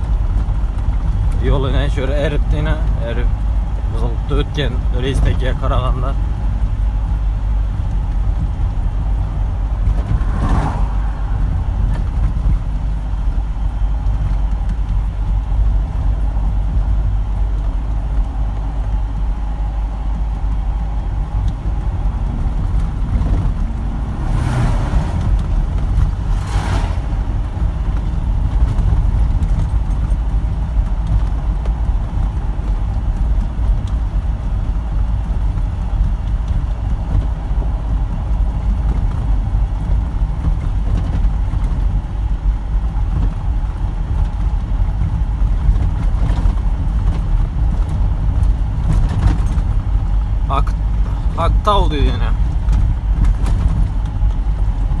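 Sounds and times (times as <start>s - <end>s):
engine and tyres rumbling: 0.0s - 55.0s
vehicles whooshing past: 9.0s - 13.3s, 20.1s - 28.9s.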